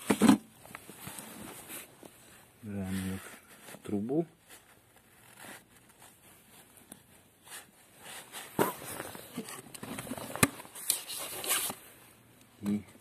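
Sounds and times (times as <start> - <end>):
camera handling rustling and knocking: 8.4 - 11.8.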